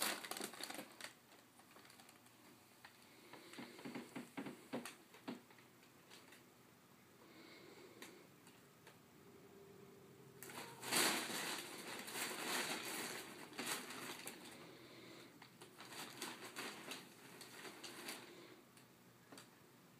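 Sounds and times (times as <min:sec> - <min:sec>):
packing paper crinkling: 0:00.0 - 0:04.0, 0:10.4 - 0:14.7, 0:15.4 - 0:18.6.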